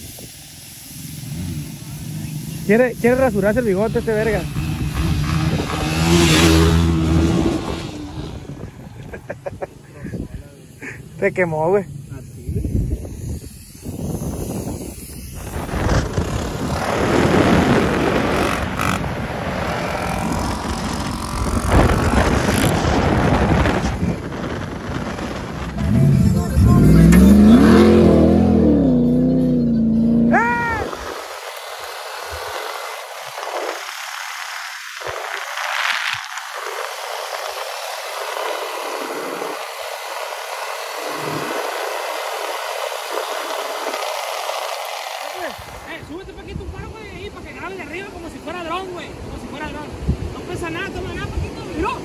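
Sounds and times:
vehicle rumbling over dirt track: 1.1 - 9.7, 15.4 - 33.9
wind rushing over microphone: 1.3 - 52.0.

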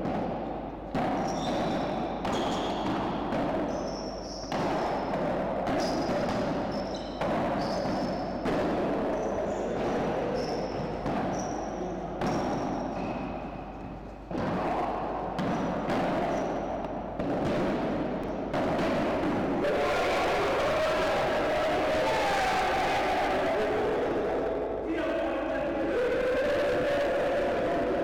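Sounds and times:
paddles striking ball: 0.0 - 19.6
ball bouncing off court and walls: 0.0 - 19.7.

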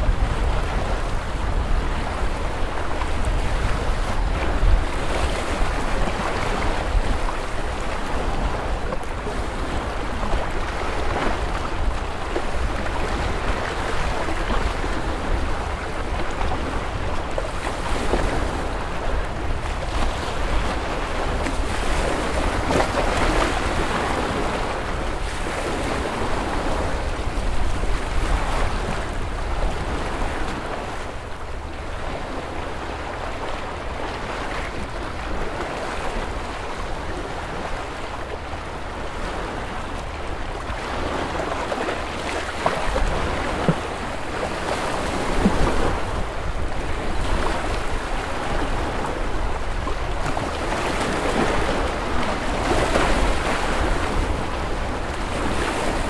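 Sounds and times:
small waves washing on shore: 0.0 - 56.0.

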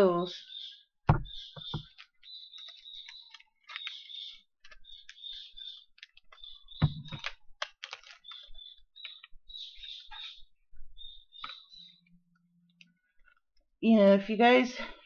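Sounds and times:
hands crinkling packaging: 1.8 - 10.0.

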